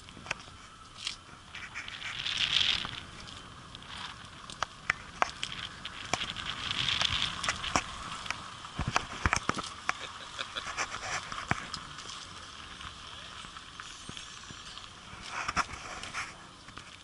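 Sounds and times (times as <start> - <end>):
footsteps on asphalt: 0.0 - 17.0
camera handling clicks and bumps: 6.9 - 10.1.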